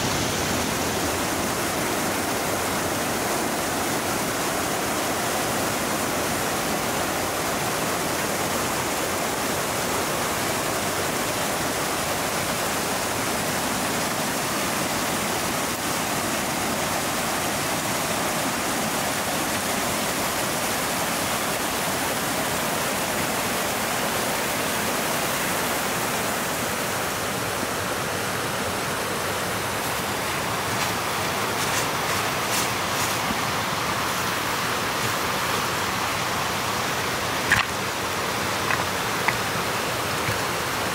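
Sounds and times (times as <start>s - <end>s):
water rushing over waterfall: 0.0s - 40.9s
crunches in snow: 30.7s - 33.5s.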